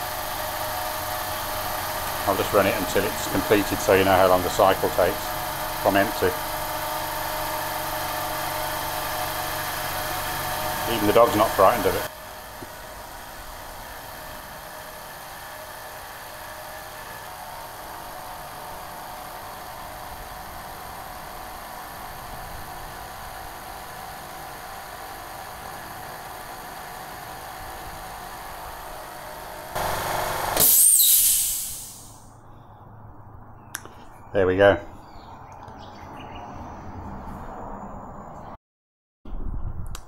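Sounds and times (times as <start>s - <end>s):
air compressor humming: 0.0s - 32.7s
hiss of released air: 30.3s - 32.3s.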